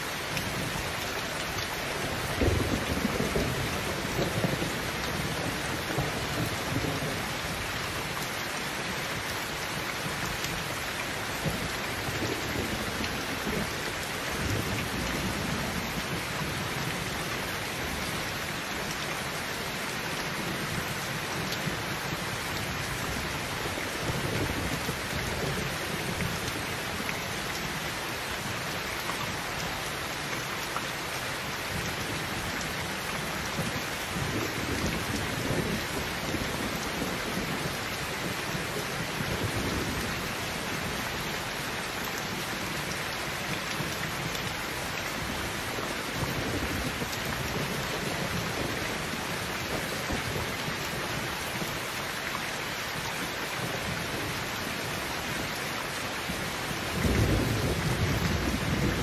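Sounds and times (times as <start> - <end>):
heavy rain: 0.0 - 59.0
thunder rumbling: 2.2 - 7.2.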